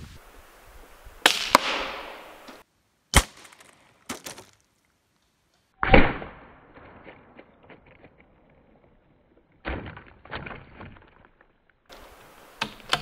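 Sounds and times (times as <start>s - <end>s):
rifle shots cracking: 1.2s - 2.4s, 3.1s - 4.4s.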